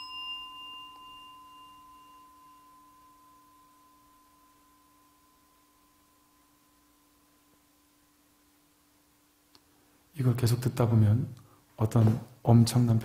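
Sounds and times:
singing bowl ringing: 0.0s - 8.2s.

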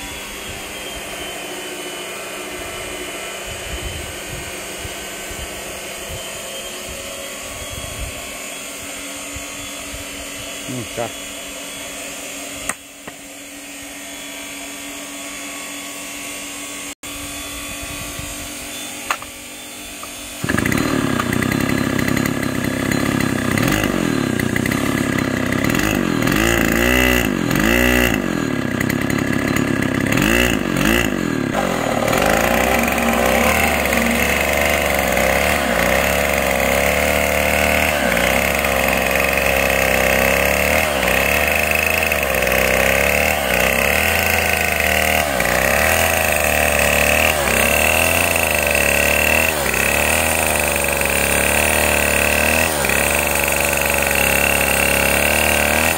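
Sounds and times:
chainsaw cutting wood: 0.0s - 55.9s
chainsaw engine revving: 10.3s - 12.8s, 19.8s - 55.9s.

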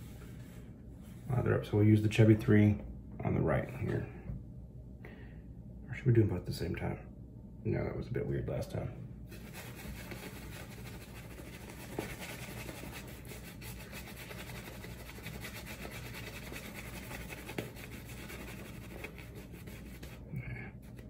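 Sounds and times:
shaving brush scrubbing lather: 9.3s - 21.0s.

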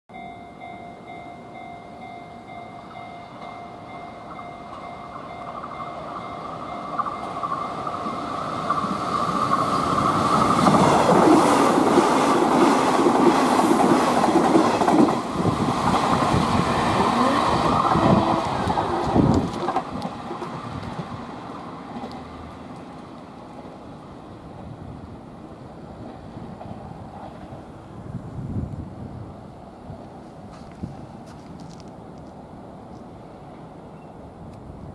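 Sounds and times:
electric train passing: 0.1s - 34.9s.

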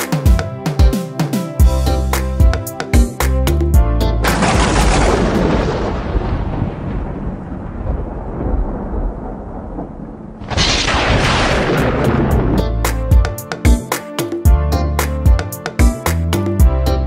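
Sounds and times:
booming thunder-like rumble: 4.2s - 12.8s.

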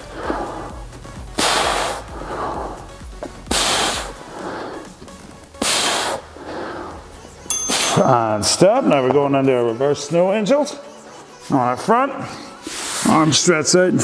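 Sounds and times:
soft breaths in: 0.0s - 8.0s
man exhaling forcefully: 1.4s - 2.9s, 3.5s - 4.8s.

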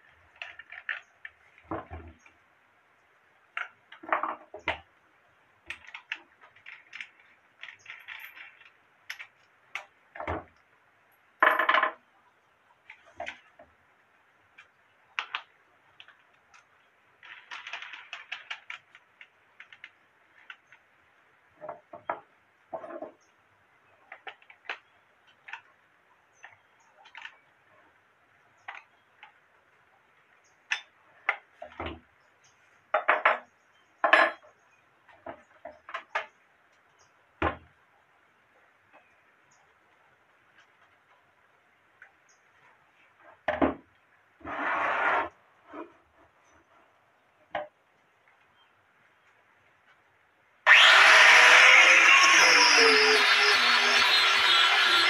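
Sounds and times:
metal clicks and clinks: 5.7s - 9.9s.

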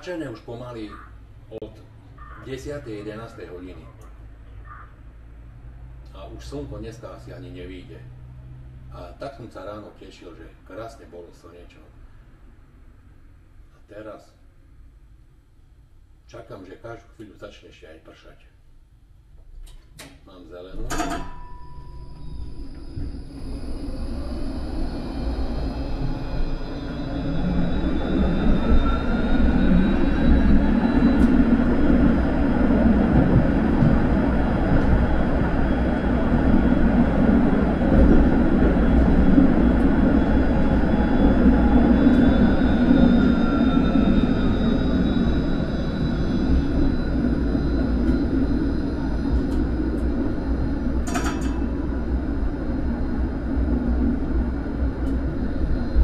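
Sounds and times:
tram motor whine: 20.7s - 56.0s
wheels rumbling on rails: 20.7s - 56.0s.

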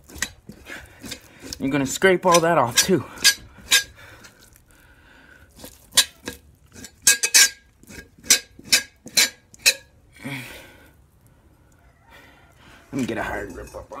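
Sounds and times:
knife scraping hide: 0.0s - 4.4s, 5.5s - 9.9s, 12.9s - 14.0s.

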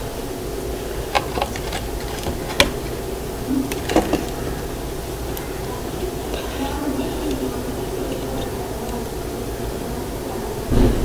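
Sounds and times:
stove fire low rumble: 0.0s - 10.8s
sharp clicks and knocks: 1.1s - 7.5s.

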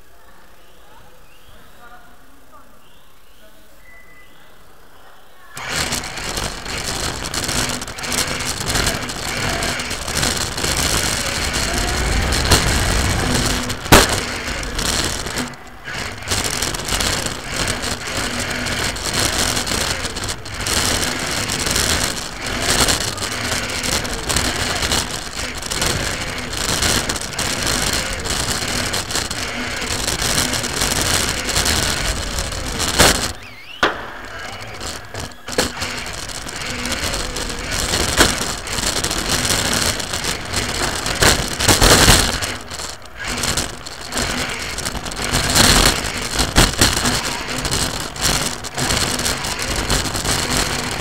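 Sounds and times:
radio-controlled car motor rushing: 5.6s - 51.0s
sharp knock: 33.8s - 34.3s.

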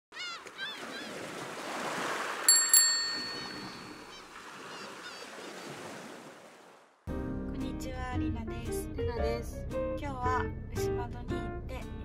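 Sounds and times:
sea waves: 0.1s - 7.0s
bicycle bell ringing: 2.5s - 4.2s
short bird calls: 3.7s - 6.1s.

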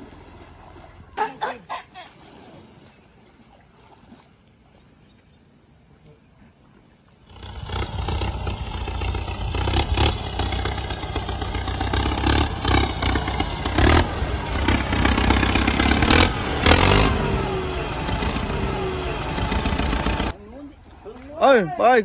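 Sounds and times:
tractor engine running: 7.3s - 21.1s.

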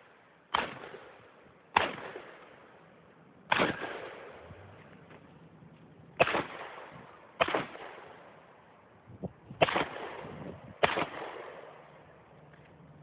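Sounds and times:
gunshots echoing: 0.5s - 2.8s, 3.5s - 4.7s, 6.2s - 8.5s, 9.6s - 12.1s.

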